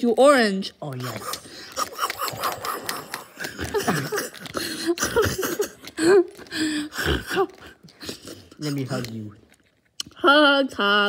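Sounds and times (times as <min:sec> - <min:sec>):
child making munching sounds: 0:00.9 - 0:08.9.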